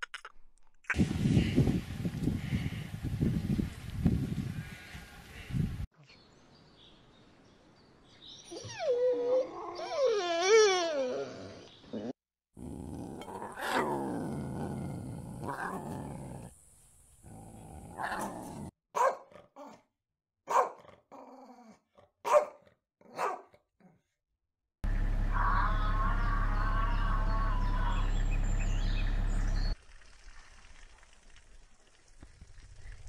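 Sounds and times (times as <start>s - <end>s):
lioness growling: 11.3s - 16.5s, 17.2s - 18.7s
dog barking: 19.0s - 19.8s, 20.5s - 20.9s, 22.2s - 23.6s
loud low hum: 24.8s - 29.8s.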